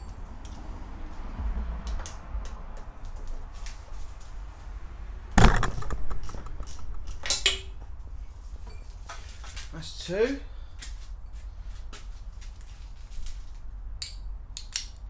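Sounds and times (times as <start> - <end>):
loud knock: 5.4 - 7.2.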